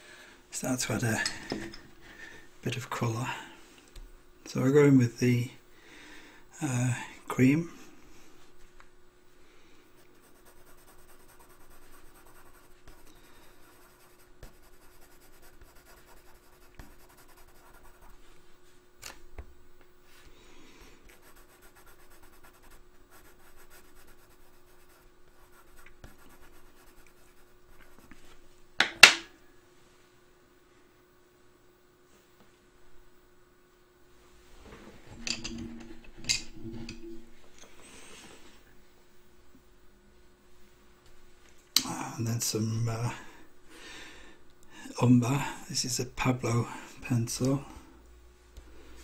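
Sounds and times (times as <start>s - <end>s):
pencil scratching on paper: 10.0s - 18.2s, 21.1s - 28.2s.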